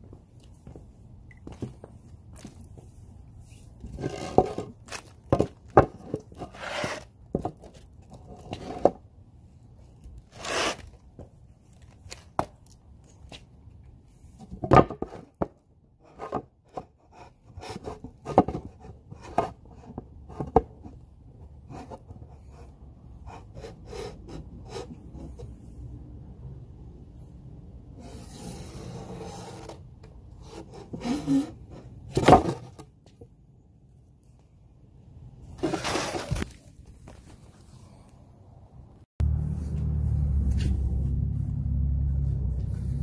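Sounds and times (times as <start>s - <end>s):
wooden board knocking and scraping: 3.9s - 9.0s, 14.5s - 15.6s, 18.1s - 21.0s, 32.1s - 32.9s
board rubbing swishes: 10.3s - 10.8s.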